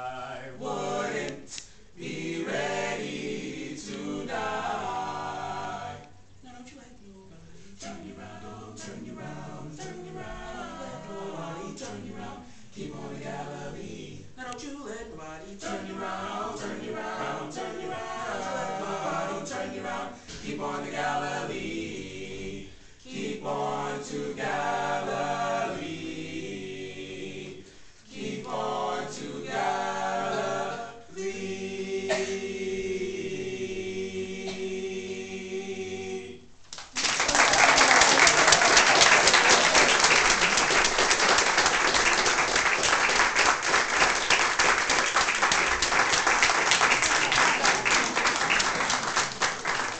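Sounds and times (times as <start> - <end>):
male a cappella group singing: 0.0 - 36.6.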